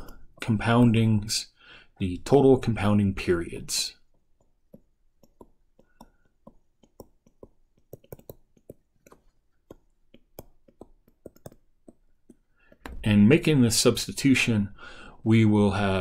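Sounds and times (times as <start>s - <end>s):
stylus tapping on writing surface: 4.1s - 13.0s.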